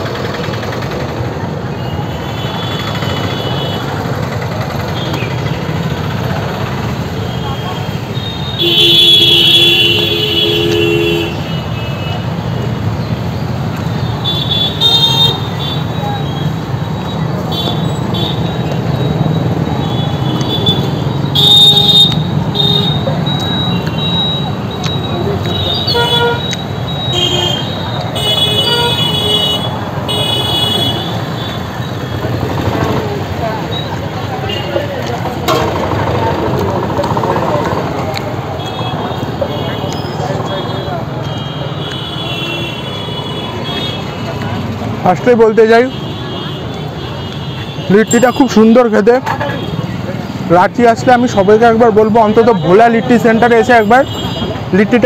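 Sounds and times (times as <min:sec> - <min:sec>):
street noise: 0:00.0 - 0:55.0
traffic rumble: 0:00.0 - 0:55.0
vehicle horns honking: 0:01.8 - 0:04.2, 0:07.0 - 0:12.4, 0:14.1 - 0:16.6, 0:17.4 - 0:32.1, 0:38.5 - 0:50.1, 0:51.1 - 0:55.0.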